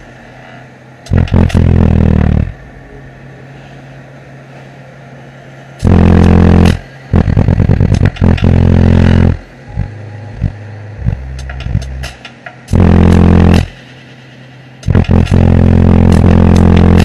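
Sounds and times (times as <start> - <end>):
bass-heavy music from subwoofers: 1.1 - 2.5, 5.8 - 13.9, 14.8 - 17.0.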